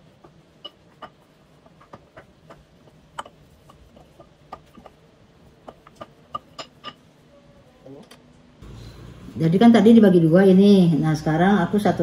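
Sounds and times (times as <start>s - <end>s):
rolling pin clicking and tapping: 0.0s - 5.0s, 5.6s - 7.0s.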